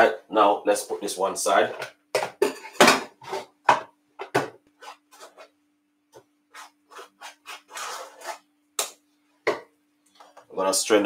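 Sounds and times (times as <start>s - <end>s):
kitchen utensils scraping and knocking: 1.7s - 5.6s, 6.5s - 8.9s.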